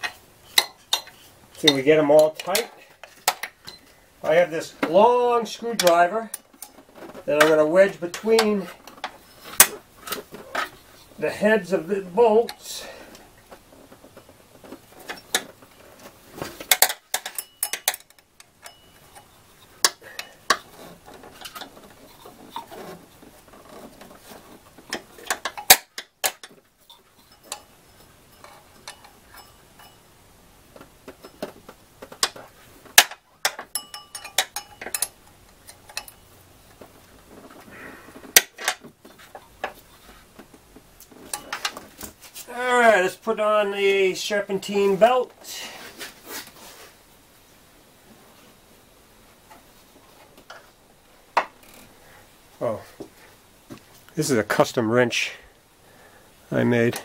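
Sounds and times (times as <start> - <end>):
metallic clicks of hand tools: 33.0 - 36.2.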